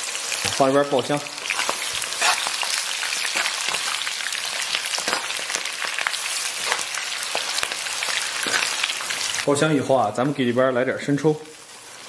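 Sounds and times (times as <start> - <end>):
food sizzling in hot oil: 0.0 - 12.0
metal ladle stirring in wok: 1.4 - 9.4.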